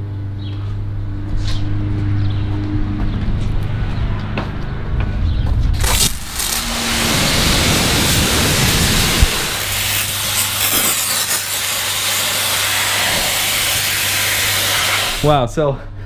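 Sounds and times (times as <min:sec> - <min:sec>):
steady low hum: 0:00.0 - 0:16.0
pressure washer spray hissing: 0:05.8 - 0:15.4.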